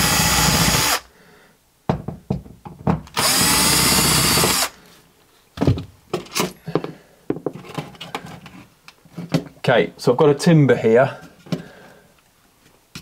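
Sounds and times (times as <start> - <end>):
cordless drill spinning out screws: 0.0 - 1.0, 3.2 - 4.8.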